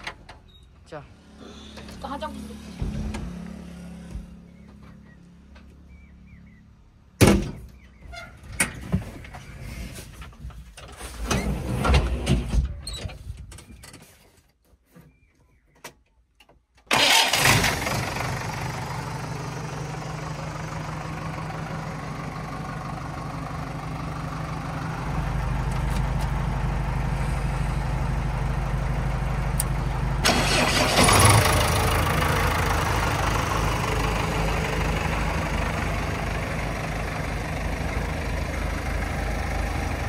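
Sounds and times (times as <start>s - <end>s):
diesel engine starting and idling: 16.9s - 40.0s.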